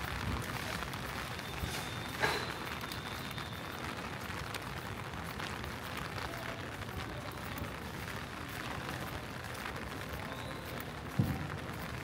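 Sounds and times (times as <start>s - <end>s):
sharp raindrop ticks: 0.0s - 12.0s
steady rain falling: 0.0s - 12.0s.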